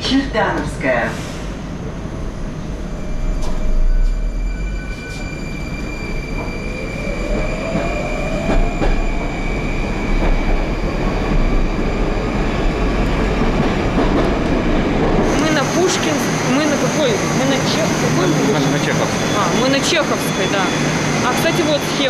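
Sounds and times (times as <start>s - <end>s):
train wheels rumbling: 0.0s - 22.0s
train motor whine: 1.4s - 14.6s.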